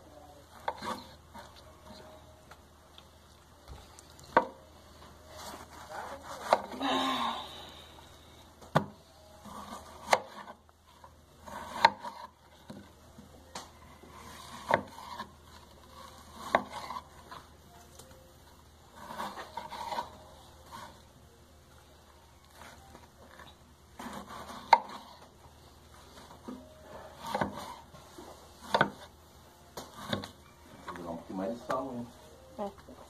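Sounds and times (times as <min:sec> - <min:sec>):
knife scrape: 0:00.6 - 0:01.6, 0:05.3 - 0:06.8, 0:09.4 - 0:10.6, 0:11.4 - 0:12.4, 0:14.1 - 0:17.4, 0:18.9 - 0:21.1, 0:22.6 - 0:25.3, 0:26.9 - 0:29.1
knife chopping on cutting board: 0:08.7 - 0:10.6, 0:11.4 - 0:12.3, 0:14.2 - 0:15.3, 0:16.3 - 0:17.0, 0:24.0 - 0:25.2, 0:27.2 - 0:27.8, 0:28.6 - 0:29.1, 0:29.8 - 0:30.3.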